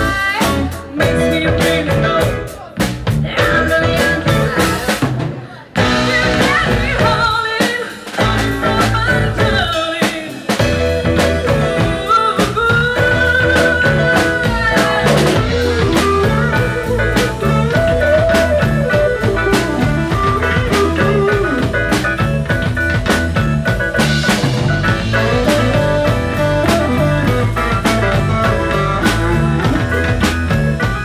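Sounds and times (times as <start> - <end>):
drum kit beat: 0.0 - 31.0
electric guitar: 0.0 - 31.0.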